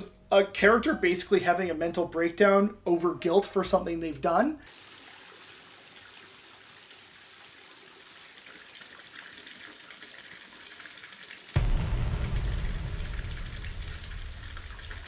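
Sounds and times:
water trickling with drips: 4.7 - 11.6
deep low rumble: 11.6 - 15.0.

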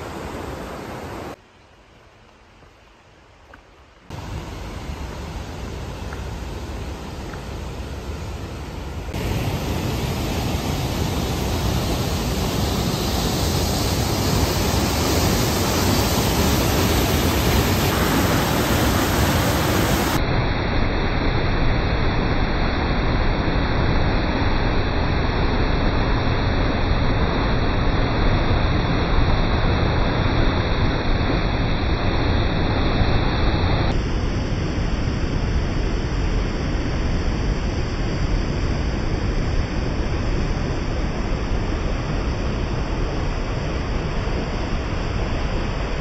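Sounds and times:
waterfall rushing close by: 0.0 - 1.4, 4.1 - 20.2
river rushing over rocks: 4.1 - 20.2.

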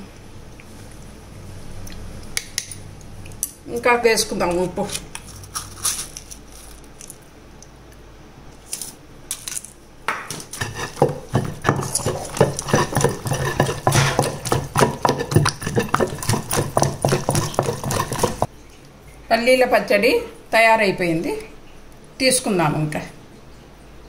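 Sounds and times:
pestle pounding in stone mortar: 10.1 - 18.5.

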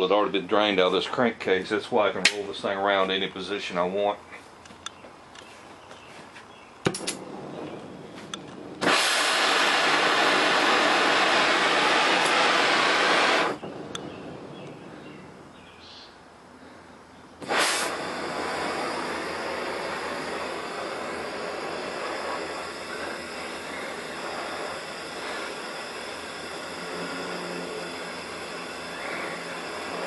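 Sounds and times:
sharp pop: 6.8 - 7.3
cutting torch flame hissing: 6.9 - 15.3, 17.4 - 30.0.

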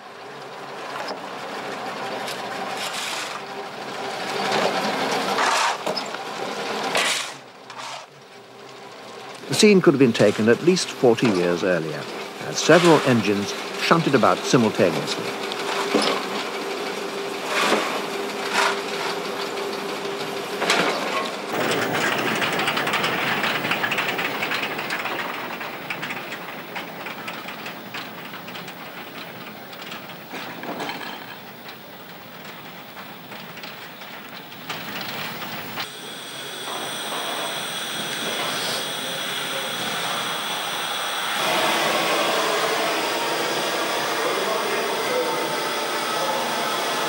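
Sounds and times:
steam locomotive noise: 0.0 - 47.0
steam hissing: 9.5 - 15.4, 21.5 - 47.0
steady hum: 21.5 - 29.7, 34.4 - 47.0.

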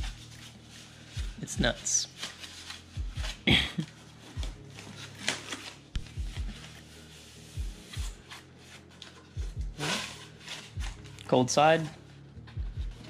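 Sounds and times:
foam packing wrap crinkling: 0.0 - 9.2
faint background music: 0.0 - 13.0.

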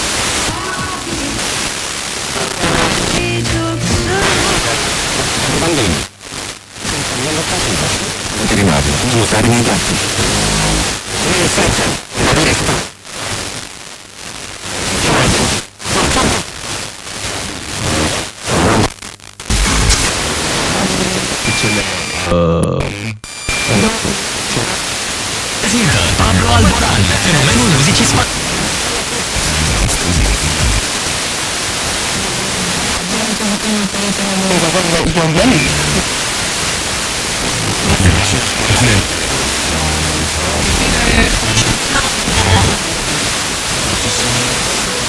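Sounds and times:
faint radio stations: 0.0 - 45.0
radio static hiss: 0.0 - 45.0
weak distant radio signal: 25.4 - 31.1, 31.9 - 45.0.

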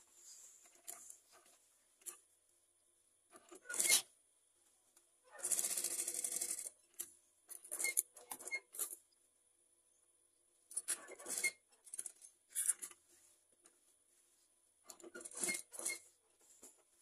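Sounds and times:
fabric rustling: 0.0 - 2.3
sewing machine stitching: 3.4 - 4.0, 5.3 - 6.7, 10.8 - 11.6, 14.9 - 16.1.

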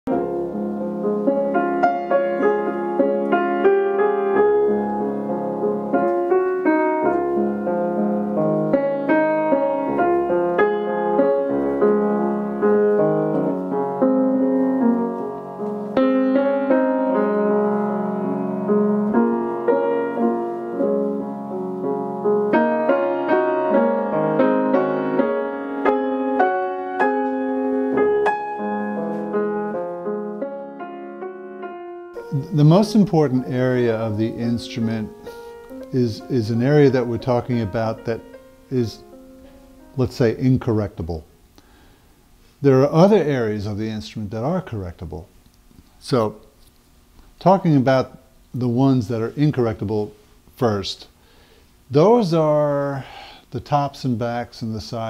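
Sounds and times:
piano music: 0.0 - 41.4.

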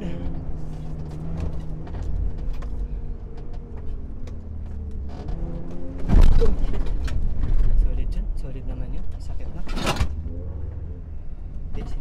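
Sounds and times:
engine drone: 0.0 - 12.0
sharp clicks and knocks: 0.9 - 7.8.

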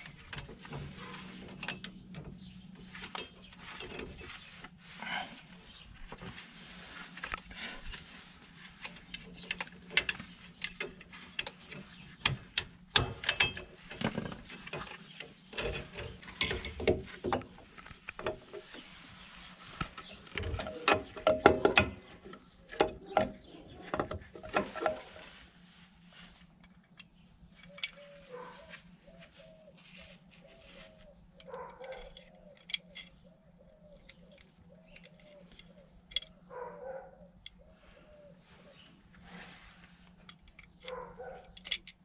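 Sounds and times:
metallic clicks and knocks of tools: 8.8 - 14.1, 31.4 - 33.2, 33.8 - 36.4, 40.2 - 42.0.

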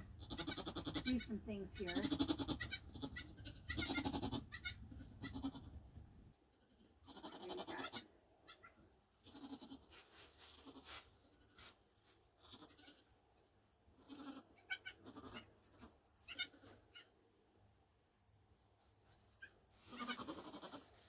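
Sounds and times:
goats bleating: 1.8 - 5.7, 7.1 - 8.7, 9.3 - 9.8, 19.9 - 20.9.

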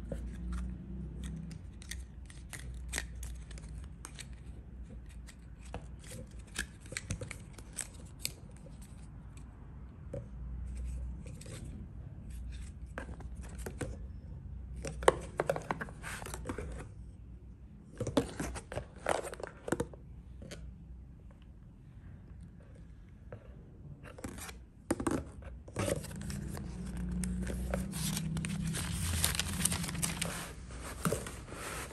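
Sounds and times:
cardboard box rustling: 25.8 - 31.9.

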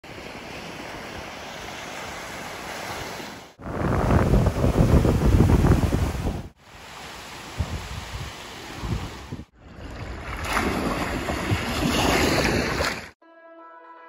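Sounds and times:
wind buffeting microphone: 3.6 - 6.6, 7.6 - 9.5.

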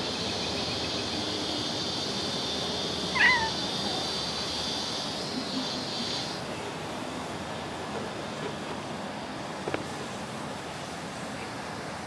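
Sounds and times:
cat meowing: 3.1 - 3.9.

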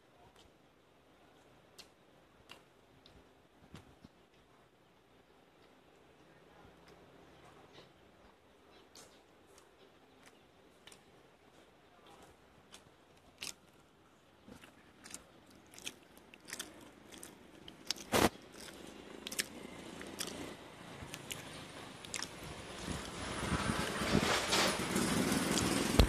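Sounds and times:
low background noise: 0.0 - 26.0.

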